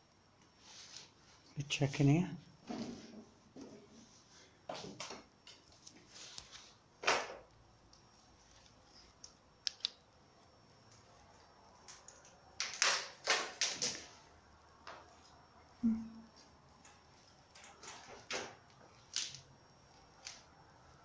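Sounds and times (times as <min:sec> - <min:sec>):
sharp clicks: 0:09.2 - 0:10.0.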